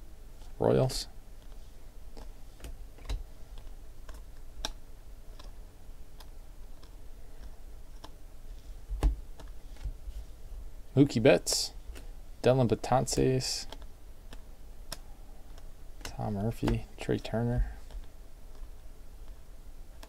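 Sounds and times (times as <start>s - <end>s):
cards flipping and clicking: 13.0s - 16.9s.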